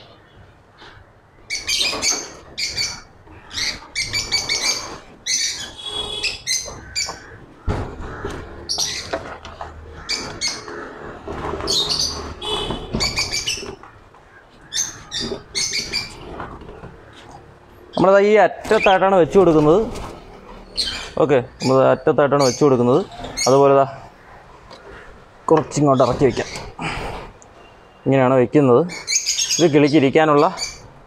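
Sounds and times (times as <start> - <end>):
cockatiels chirping and screeching: 1.5 - 7.4, 8.1 - 9.3, 10.0 - 13.8, 14.6 - 16.4, 20.6 - 23.7.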